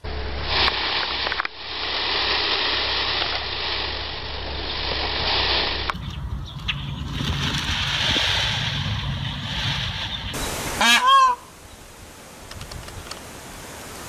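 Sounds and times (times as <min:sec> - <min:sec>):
steady low hum and hiss: 0:00.0 - 0:07.0, 0:08.7 - 0:14.0
peacock honking call: 0:10.5 - 0:11.6.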